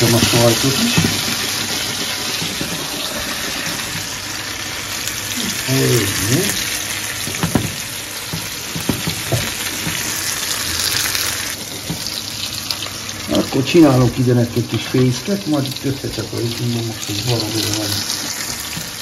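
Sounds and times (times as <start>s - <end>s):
burger patties sizzling in pan: 0.0s - 19.0s
short knocks: 0.1s - 4.1s, 7.2s - 10.3s.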